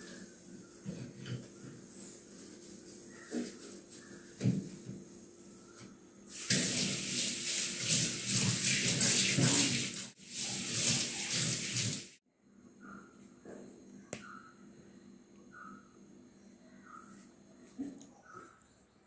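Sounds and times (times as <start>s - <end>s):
tap water splashing in metal sink: 6.4s - 12.0s.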